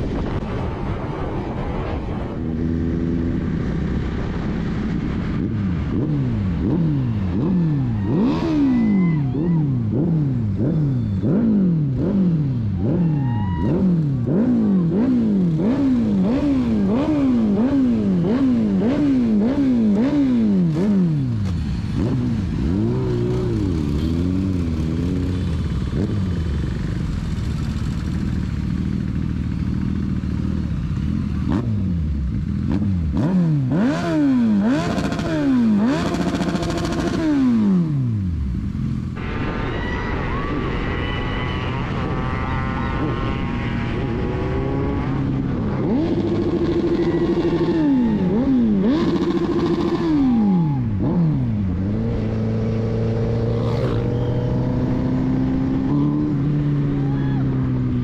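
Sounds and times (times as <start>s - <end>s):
engine revving hard: 41.5s - 56.4s.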